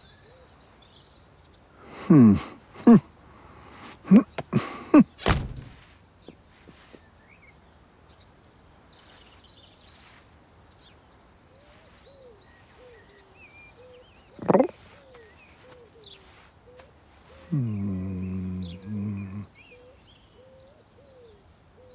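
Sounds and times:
birds chirping: 0:00.0 - 0:21.9
door slamming: 0:05.1 - 0:05.9.

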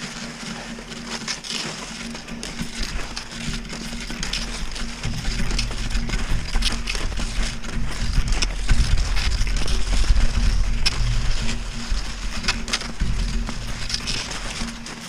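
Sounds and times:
ski poles crunching in snow: 0:00.0 - 0:15.0
skis swishing in snow: 0:00.0 - 0:15.0
wind buffeting microphone: 0:02.6 - 0:14.9.

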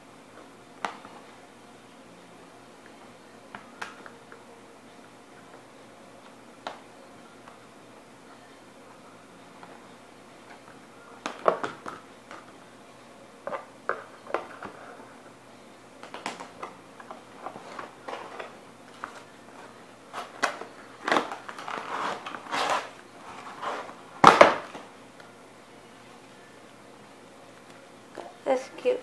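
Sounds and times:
plastic packaging crinkling: 0:20.1 - 0:24.6.

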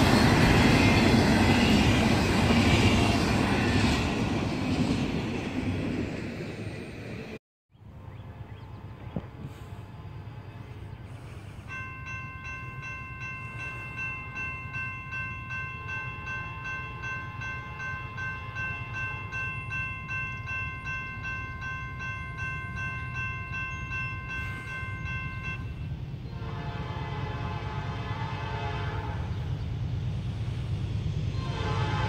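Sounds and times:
crossing warning bell ringing: 0:11.6 - 0:25.9.

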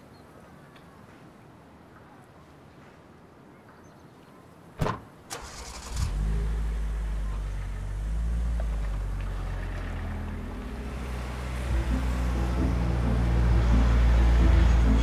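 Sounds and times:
car engine starting and running: 0:05.3 - 0:15.0.

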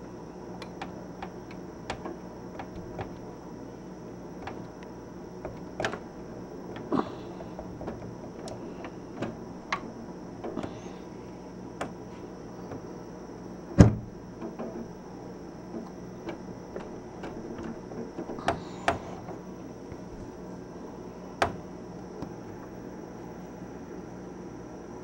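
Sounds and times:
high insect drone: 0:00.0 - 0:25.0
small clicks and taps: 0:00.6 - 0:03.3, 0:04.4 - 0:06.0.

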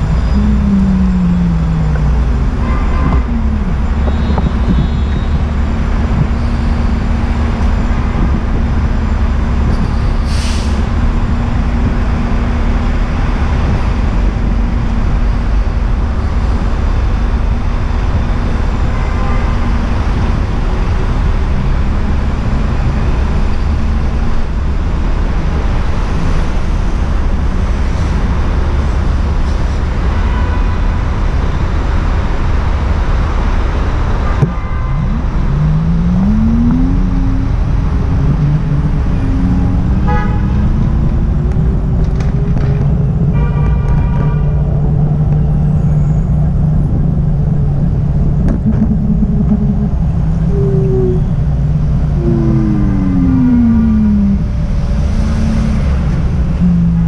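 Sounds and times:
cars and bus passing: 0:00.0 - 0:57.0
heavy low traffic rumble: 0:00.0 - 0:57.0
air brake hiss: 0:10.2 - 0:10.8.

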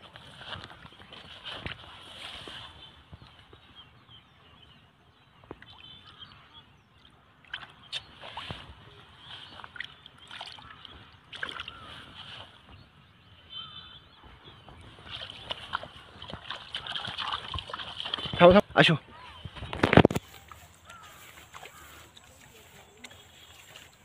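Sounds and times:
hands splashing in muddy water: 0:07.4 - 0:12.7, 0:14.9 - 0:18.6, 0:19.5 - 0:24.0.

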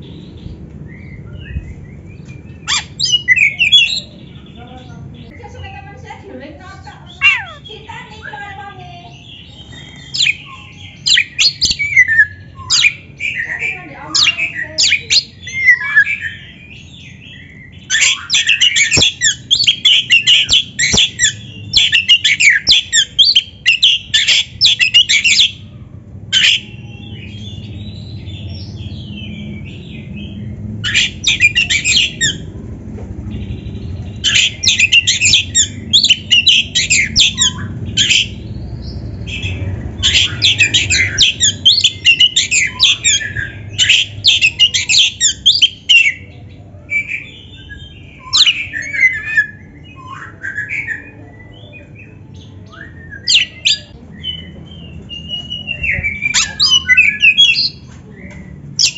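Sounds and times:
magpie-robin singing: 0:00.0 - 0:32.6, 0:33.3 - 0:58.9.

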